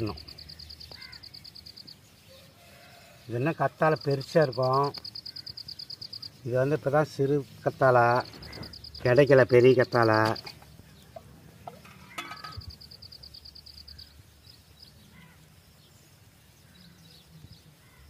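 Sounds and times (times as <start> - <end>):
insect trill: 0.0 - 10.7, 11.7 - 15.9
faint bird call: 0.8 - 1.4.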